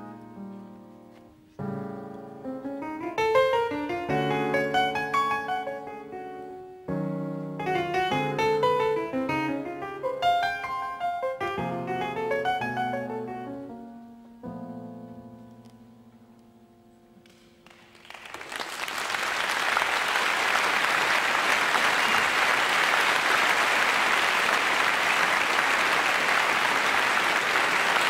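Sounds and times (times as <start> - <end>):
solo jazz piano: 0.0 - 17.6
audience applause: 17.6 - 28.0.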